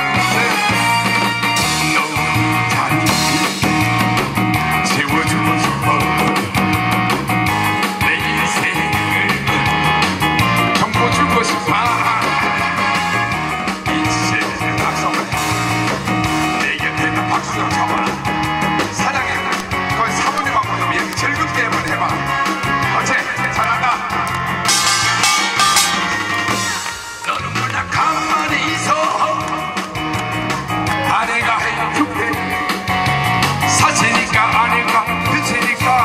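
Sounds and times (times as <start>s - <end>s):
loud music with fast beat: 0.0s - 23.6s, 24.7s - 31.1s.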